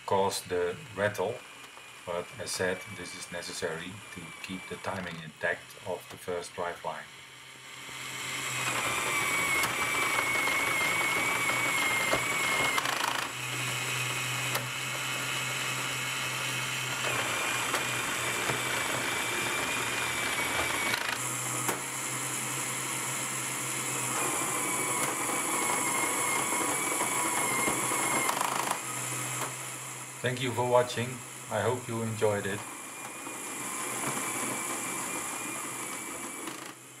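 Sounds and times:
toy motor and gears whirring: 2.0 - 7.0, 8.2 - 21.7, 24.1 - 29.5.

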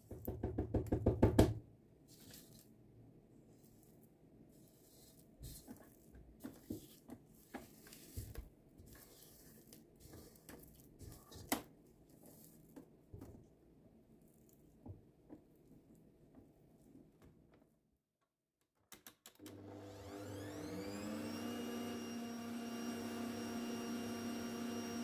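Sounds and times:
spatula scraping batter in bowl: 4.5 - 12.6.

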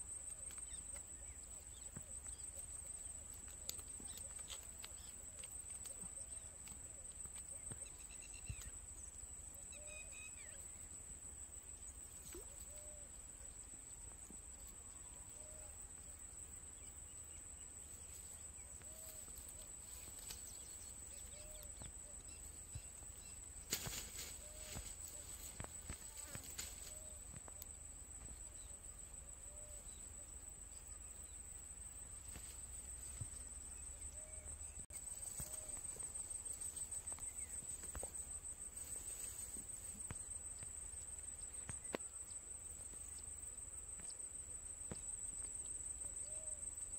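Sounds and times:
insects trilling: 0.0 - 46.9.

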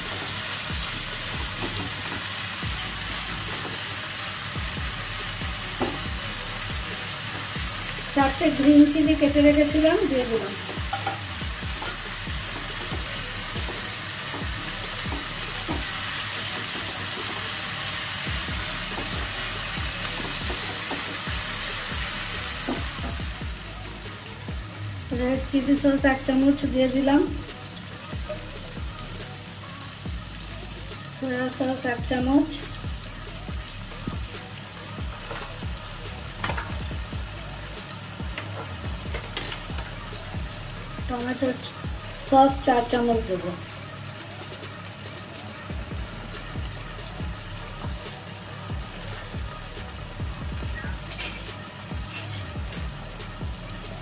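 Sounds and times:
vegetables sizzling in hot oil: 0.0 - 54.0
spatula scraping and tapping pan: 52.1 - 52.5.

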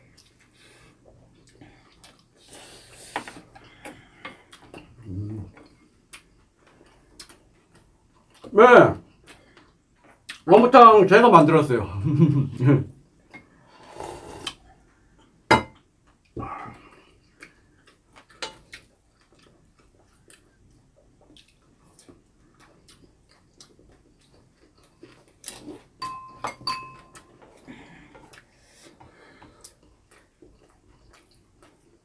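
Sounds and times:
soft chewing: 0.0 - 10.5, 13.1 - 26.1, 26.9 - 32.0
utensils clinking on ceramic bowls: 26.0 - 27.3.

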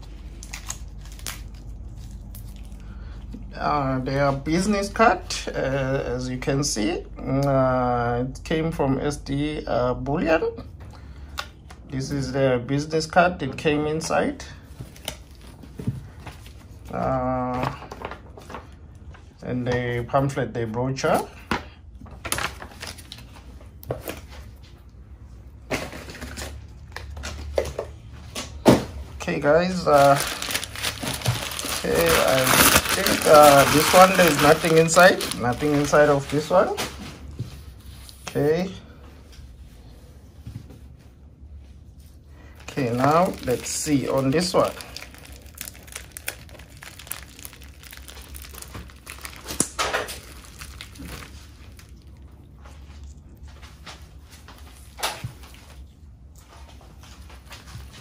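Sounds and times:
paper and packaging rustling: 22.1 - 24.7, 29.2 - 38.7, 42.4 - 58.0.

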